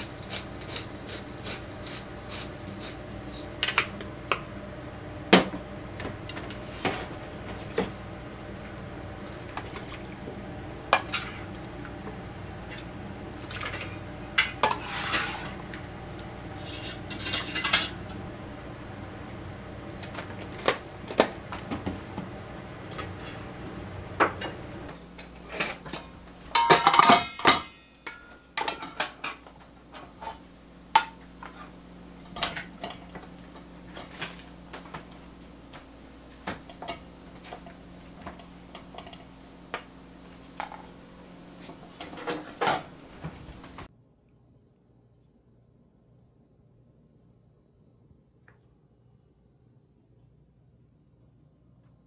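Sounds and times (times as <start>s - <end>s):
low steady hum: 0.0s - 52.0s
metal bowl scraping a pot: 13.4s - 15.8s, 16.5s - 18.0s.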